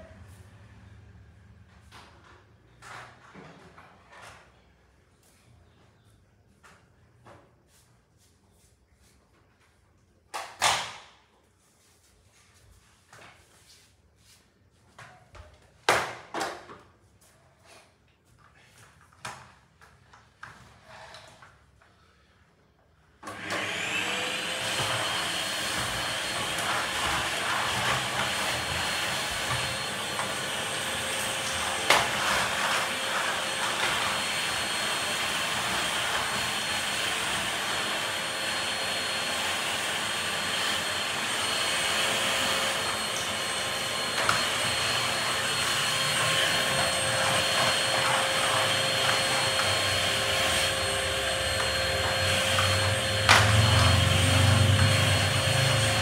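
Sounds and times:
vacuum cleaner motor whine: 0:23.1 - 0:56.0.

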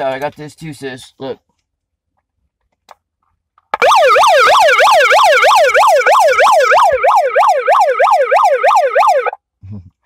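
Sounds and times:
electronic siren yelping: 0:03.8 - 0:09.4.

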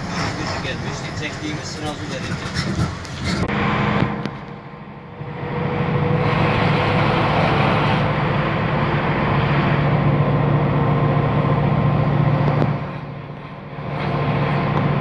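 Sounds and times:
car engine hum: 0:00.0 - 0:15.0
road noise: 0:00.0 - 0:15.0.

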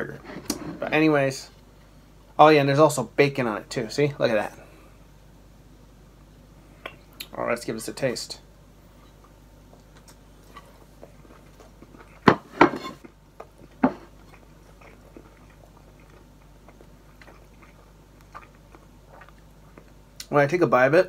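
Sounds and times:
person chewing food: 0:08.9 - 0:12.4, 0:13.0 - 0:20.3.

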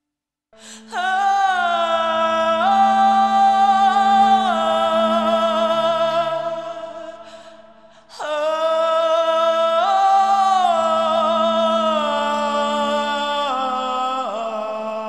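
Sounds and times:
low drone: 0:00.6 - 0:08.1, 0:10.1 - 0:14.4
music with held high notes: 0:00.6 - 0:15.0.

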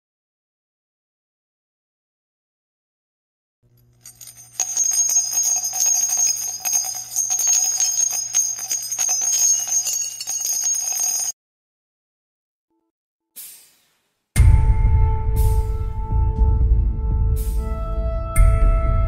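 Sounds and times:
high ringing tones: 0:03.8 - 0:11.4.

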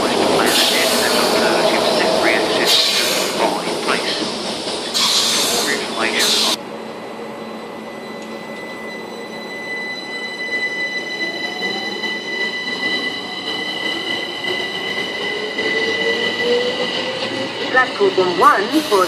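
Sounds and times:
high whine: 0:00.0 - 0:05.0
electric train pulling away: 0:00.0 - 0:19.0.

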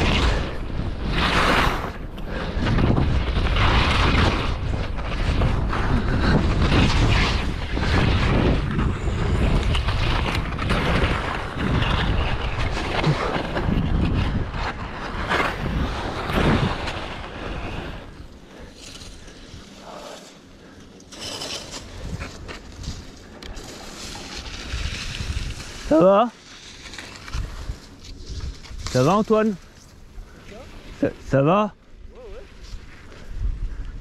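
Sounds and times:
wind buffeting microphone: 0:00.0 - 0:18.3, 0:24.4 - 0:25.9
skis carving on snow: 0:00.0 - 0:34.0.

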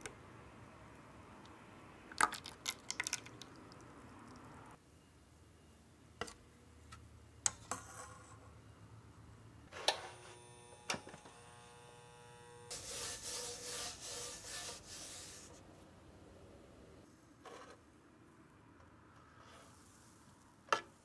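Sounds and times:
paper towel rubbing metal griddle: 0:12.7 - 0:15.6.

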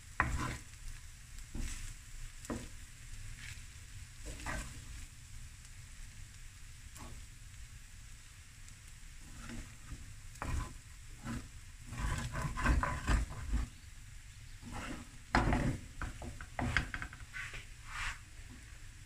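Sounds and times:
faint sizzle: 0:00.0 - 0:19.0
wooden spoon scraping a pan: 0:00.1 - 0:05.1, 0:06.9 - 0:07.3, 0:09.2 - 0:13.9, 0:14.5 - 0:18.8.

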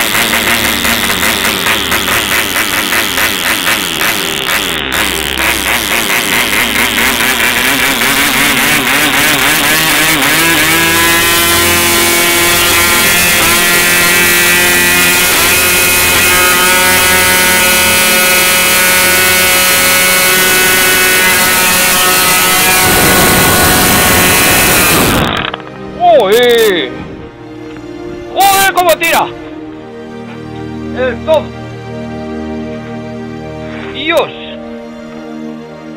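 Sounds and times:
model airplane engine buzzing: 0:00.0 - 0:25.9.

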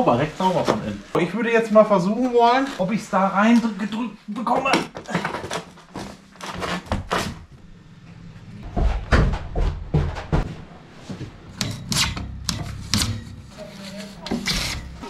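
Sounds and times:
heavy thuds: 0:08.6 - 0:11.7.

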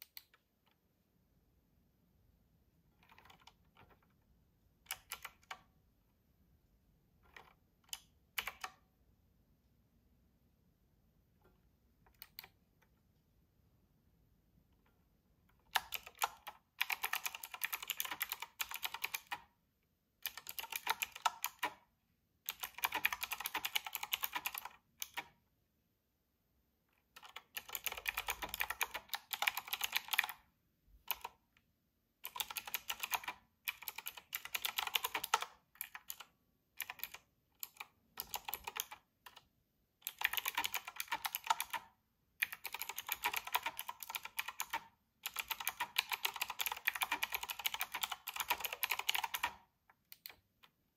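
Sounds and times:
mechanical keyboard typing: 0:02.9 - 0:04.2, 0:04.8 - 0:05.7, 0:07.2 - 0:08.8, 0:12.1 - 0:12.6, 0:15.5 - 0:19.5, 0:20.2 - 0:21.8, 0:22.5 - 0:25.4, 0:27.0 - 0:31.4, 0:32.2 - 0:50.8.

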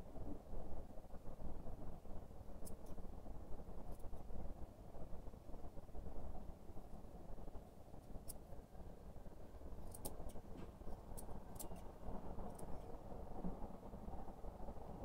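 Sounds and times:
low background rumble: 0:00.0 - 0:15.0
scissors snipping fur: 0:09.8 - 0:11.9.

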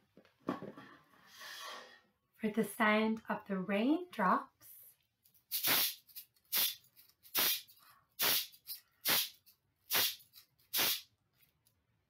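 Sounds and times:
hand shaker swishes: 0:05.5 - 0:11.0.

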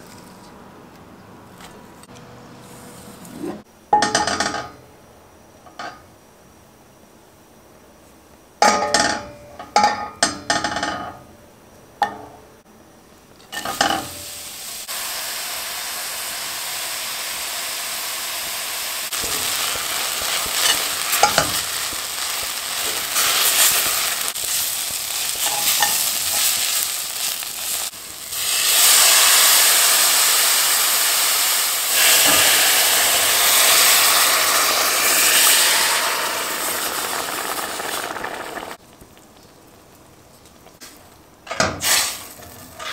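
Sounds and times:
onions sizzling in butter: 0:13.5 - 0:39.8.

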